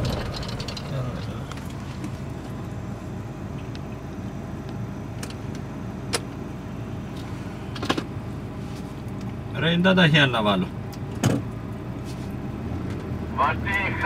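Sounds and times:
knocks and rattles: 0.0s - 2.1s
off-road vehicle engine running: 0.0s - 14.0s.

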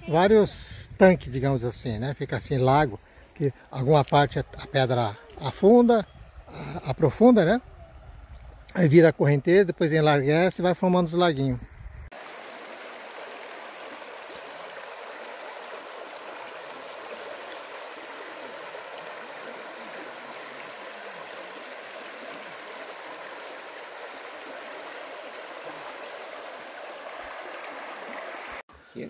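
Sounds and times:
river flowing over gravel: 12.1s - 28.6s.

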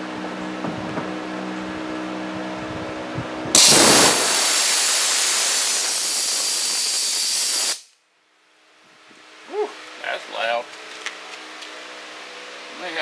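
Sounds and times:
steady hum: 0.0s - 8.6s
compressed air hissing from drain: 3.6s - 7.9s.

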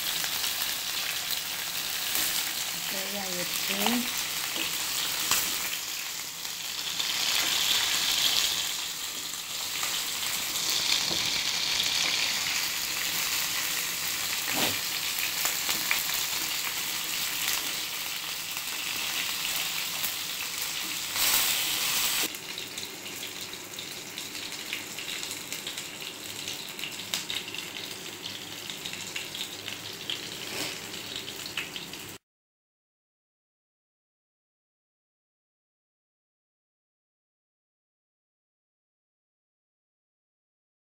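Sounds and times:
food sizzling in hot oil: 0.0s - 32.2s.

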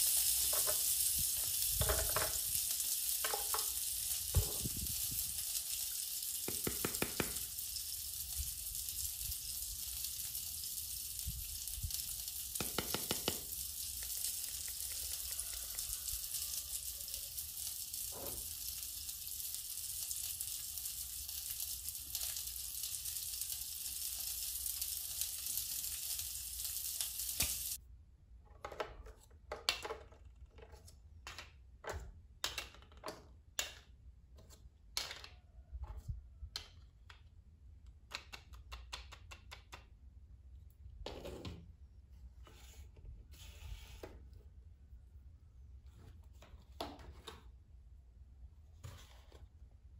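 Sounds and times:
toy grill frying sizzle: 0.0s - 27.8s
plastic toys clicking and knocking: 0.0s - 40.2s.

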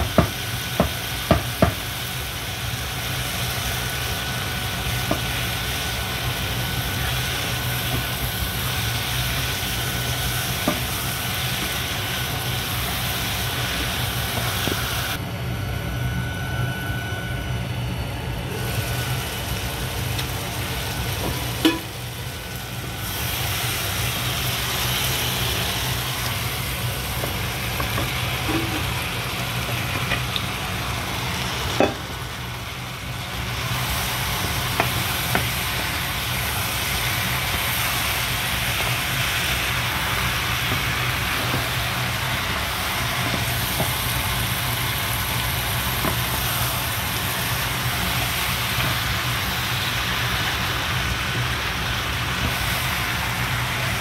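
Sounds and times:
food sizzling in a pan: 0.0s - 15.2s, 18.6s - 54.0s
cookware clanking: 21.6s - 21.9s.

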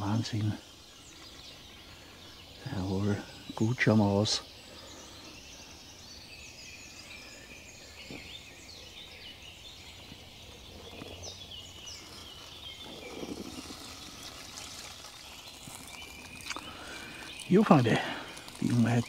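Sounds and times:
songbirds singing: 0.0s - 19.0s
coffee pouring into mug: 12.8s - 19.0s.

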